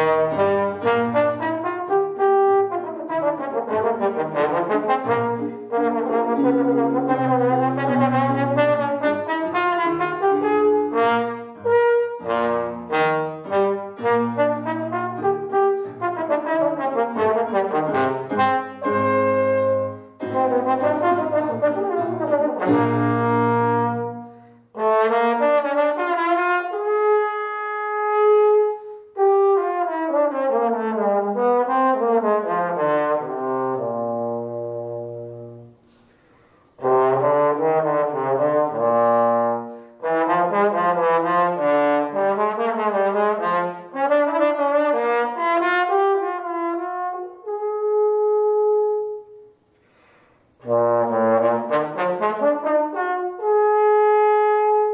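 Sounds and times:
solo trombone playing: 0.0 - 49.6, 50.5 - 54.9
player breathing: 35.8 - 36.8, 49.6 - 50.6.

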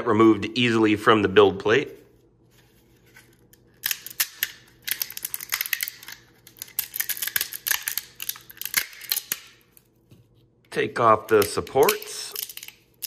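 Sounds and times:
plastic snapping and crackling: 3.5 - 9.9, 11.1 - 13.0.

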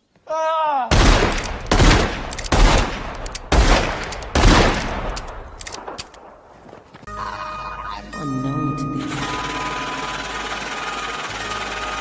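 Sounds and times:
heavy gunshots: 0.9 - 6.0.

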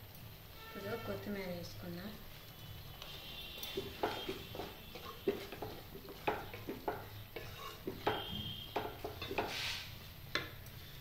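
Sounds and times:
spoon knocking against pan: 3.6 - 9.6.

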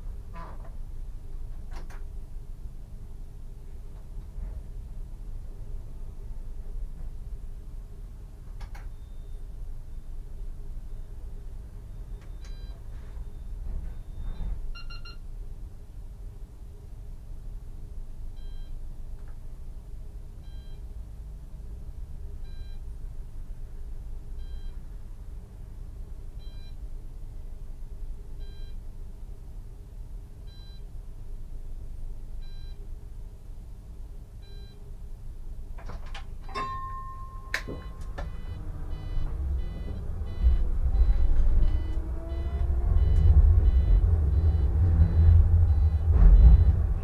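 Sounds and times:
tram cab hum: 35.1 - 47.0
short soft beeps: 36.5 - 46.7
tram motor whine: 37.4 - 47.0.

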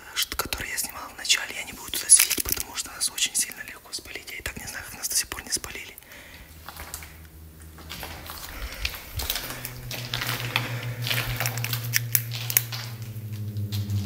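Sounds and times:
sharp clicks and crackles: 2.0 - 2.9
low pulsing hum: 6.0 - 14.0.

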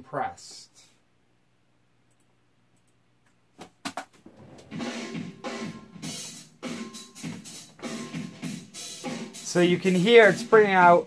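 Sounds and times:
drum kit over studio monitors: 3.5 - 11.0.

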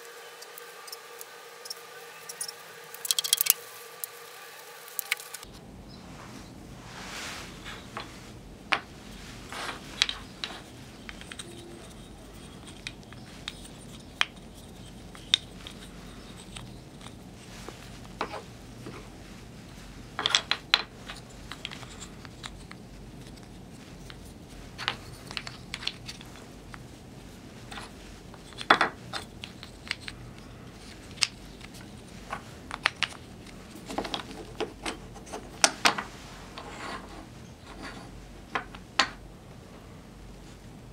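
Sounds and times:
steady low hum: 0.0 - 40.9
wooden puzzle pieces clicking: 2.3 - 4.2, 4.9 - 5.5, 9.6 - 17.3, 20.2 - 26.8, 27.7 - 36.1.

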